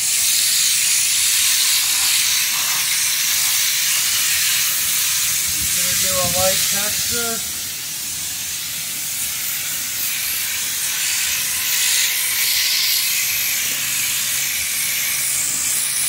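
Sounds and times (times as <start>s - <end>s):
spray gun hissing compressed air: 0.0s - 16.0s.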